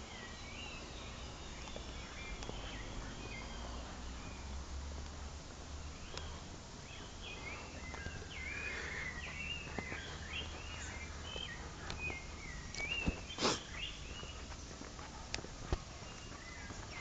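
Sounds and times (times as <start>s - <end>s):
bird singing whistled notes: 0.0s - 4.6s, 5.9s - 14.5s.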